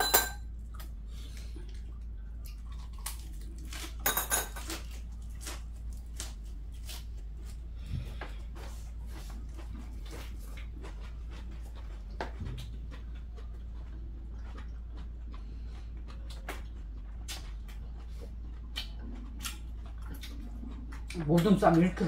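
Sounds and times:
utensils clicking on bowls: 0.0s - 0.4s
steady low hum: 0.0s - 22.0s
people chewing: 0.5s - 4.0s, 4.6s - 22.0s.

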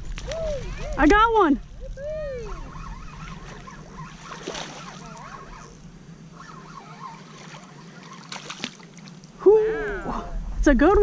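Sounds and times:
fish splashing at water surface: 4.2s - 5.3s, 7.1s - 9.2s
wind noise on microphone: 9.9s - 11.0s.

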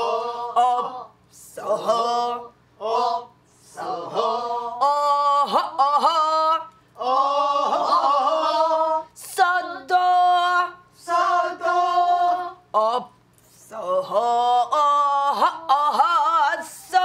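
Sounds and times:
woman singing unaccompanied: 7.6s - 17.0s.

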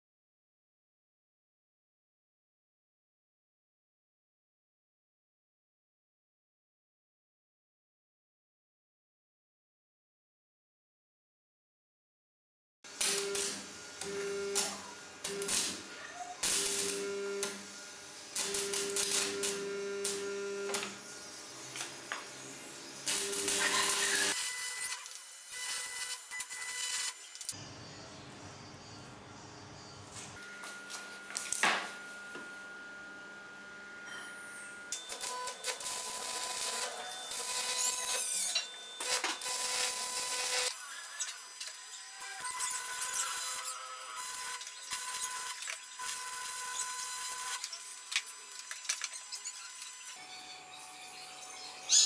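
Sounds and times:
welding arc crackling and hissing: 12.9s - 27.6s, 30.2s - 32.0s, 34.9s - 50.2s.

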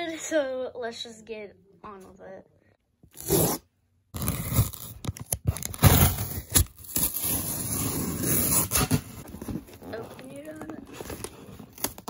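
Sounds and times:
packing tape tearing off cardboard: 3.1s - 12.0s.

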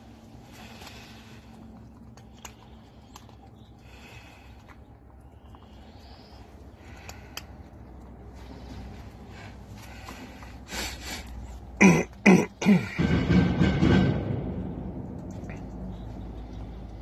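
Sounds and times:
hacking throat-clearing: 10.7s - 13.1s
person coughing: 11.8s - 13.0s.

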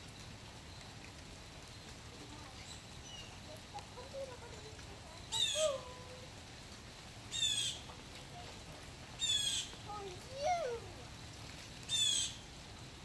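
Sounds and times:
rain falling: 0.0s - 13.0s
blue jay jeer calls: 5.3s - 5.8s, 7.3s - 7.8s, 9.2s - 9.7s, 11.9s - 12.4s.

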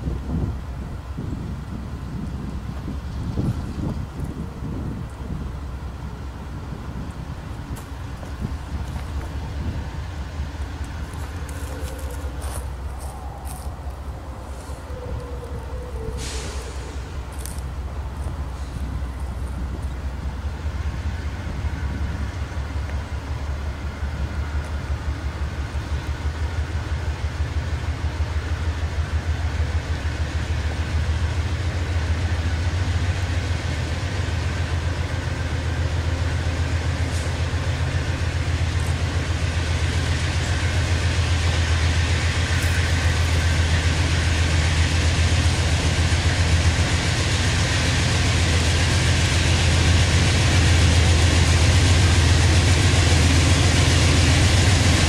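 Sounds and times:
diesel locomotive engine rumble: 0.0s - 55.0s
high hiss: 10.7s - 19.1s.

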